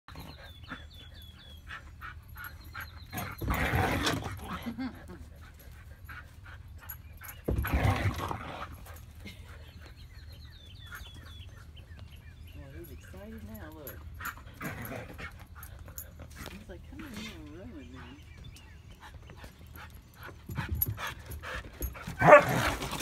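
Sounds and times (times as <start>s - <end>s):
dog panting: 17.6s - 22.4s.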